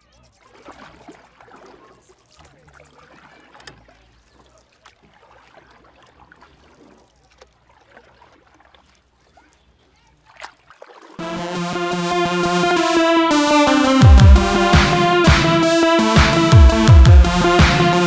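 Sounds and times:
small water splashes: 0.0 - 11.2
lake water lapping: 0.3 - 11.2.

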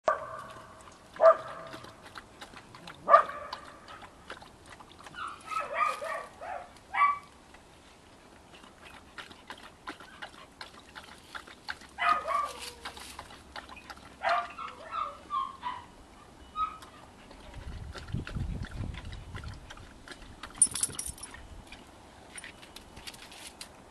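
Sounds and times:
dog whining and yelping: 13.7 - 17.1.

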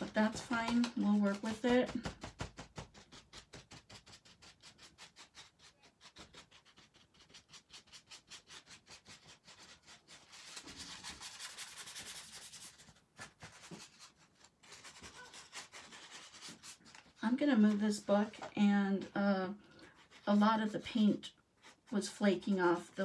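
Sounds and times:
paper towel rubbing on paper: 2.8 - 19.1.

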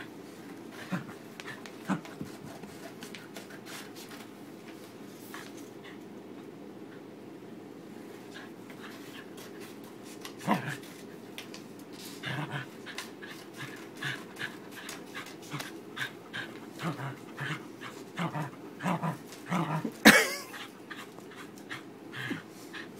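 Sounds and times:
dog growling: 0.8 - 2.1, 10.4 - 10.9, 12.2 - 22.9
dog panting: 12.0 - 19.3, 20.4 - 22.9.

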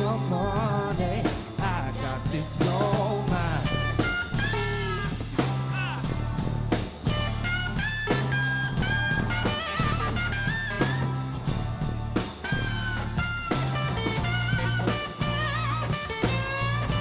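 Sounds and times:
blues-rock band playing: 0.0 - 17.0
electric guitar solo: 3.7 - 6.3, 7.1 - 11.6, 12.3 - 17.0.

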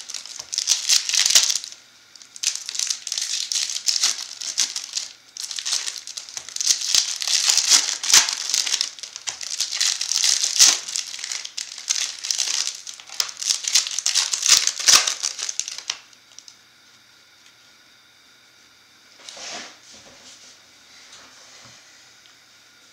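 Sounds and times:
foil wrappers crinkling: 0.0 - 16.5.

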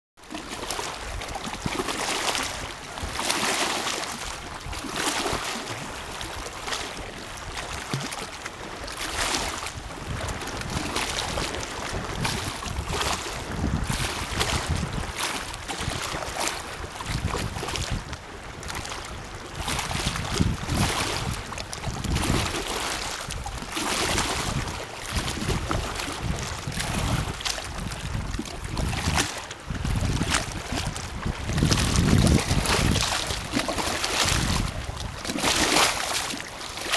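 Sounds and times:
lake waves lapping and splashing: 0.2 - 36.9
wind rumbling on microphone: 0.4 - 36.9.

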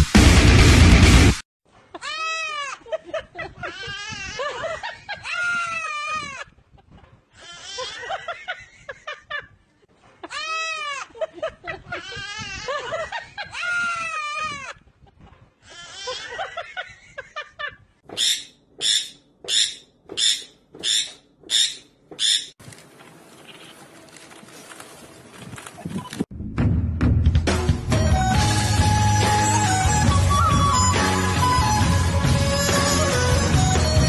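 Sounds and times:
loud music: 0.0 - 1.4, 26.5 - 34.0.

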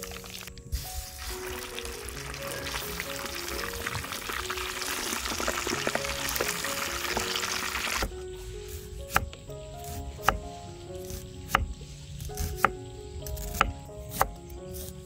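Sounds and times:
fish deep-frying in oil: 0.0 - 8.2
background music: 0.0 - 15.0.

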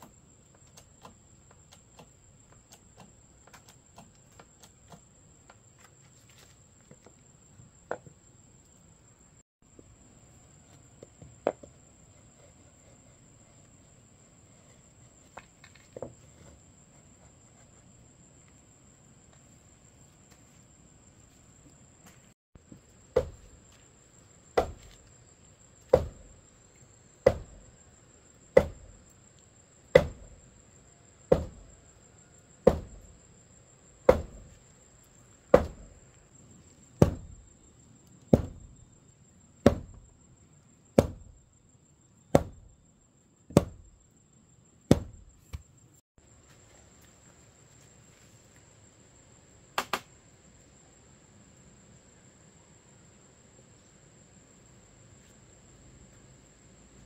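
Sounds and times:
tamper pounding earth: 23.0 - 23.7, 24.6 - 25.1, 25.9 - 26.4, 31.3 - 31.8, 32.6 - 33.1, 34.1 - 34.6, 35.5 - 36.0, 37.0 - 37.5.

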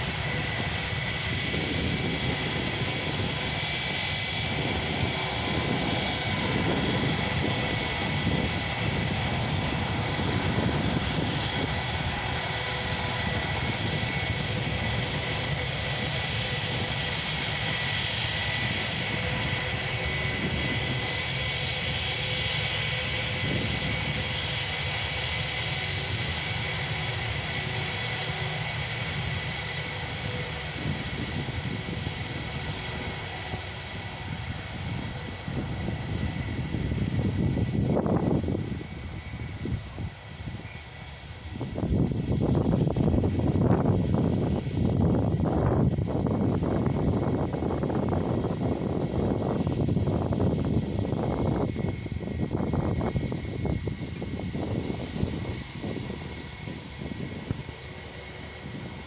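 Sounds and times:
jet engines roaring with whine: 0.0 - 59.0.

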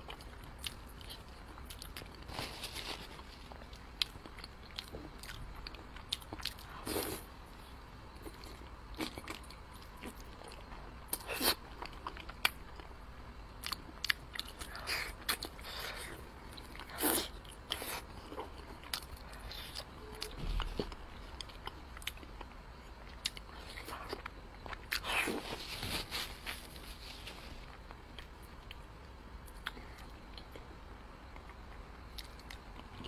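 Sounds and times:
chewing with wet mouth clicks: 29.4 - 30.6.

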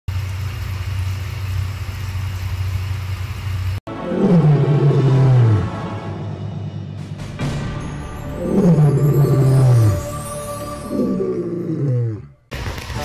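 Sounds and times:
deep rasping falling tone: 3.9 - 7.2.

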